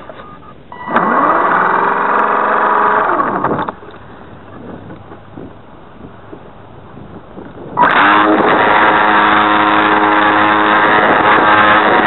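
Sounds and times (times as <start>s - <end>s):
electric motor whine: 0.8s - 3.8s, 7.8s - 12.0s.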